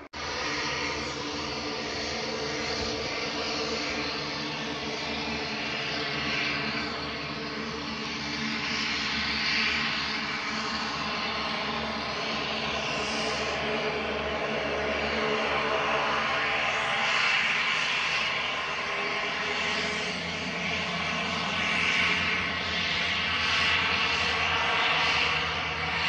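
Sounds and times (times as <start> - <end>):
turboprop engines running: 0.0 - 26.0.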